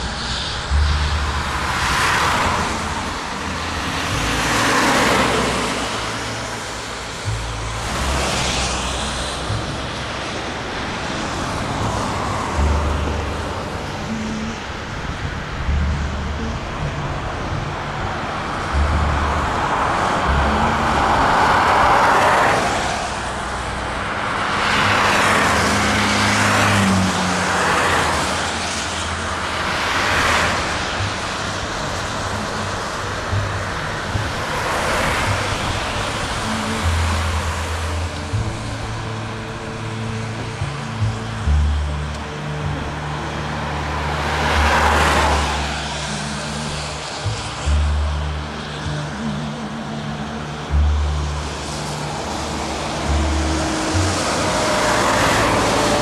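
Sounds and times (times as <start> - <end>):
cars driving past: 0.0 - 56.0
steady road noise: 0.0 - 56.0.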